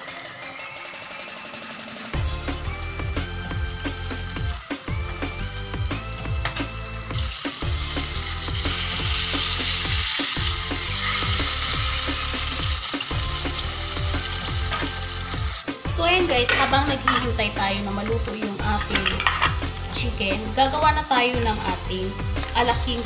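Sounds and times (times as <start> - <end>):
background music: 0.0 - 23.0
chicken deep-frying in oil: 2.1 - 23.0.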